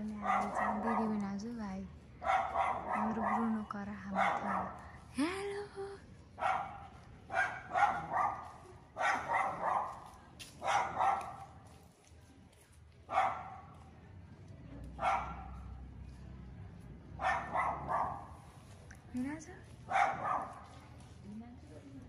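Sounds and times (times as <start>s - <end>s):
dog barking: 0.2s - 1.2s, 2.2s - 4.9s, 6.4s - 11.6s, 13.1s - 13.9s, 15.0s - 15.8s, 17.2s - 18.4s, 19.9s - 20.8s.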